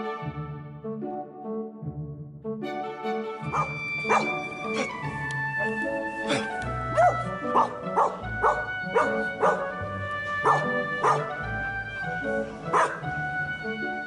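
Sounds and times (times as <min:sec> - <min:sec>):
background music: 0:00.0 - 0:14.0
dog yipping and whining: 0:03.5 - 0:04.9, 0:06.9 - 0:09.7, 0:10.4 - 0:11.2, 0:12.8 - 0:13.0.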